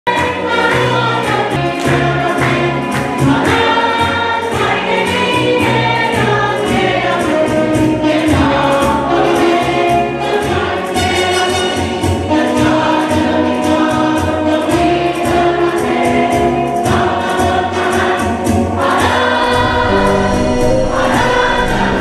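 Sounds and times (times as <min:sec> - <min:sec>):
choir singing sustained notes: 0:00.2 - 0:22.0
low instrumental line: 0:18.8 - 0:22.0.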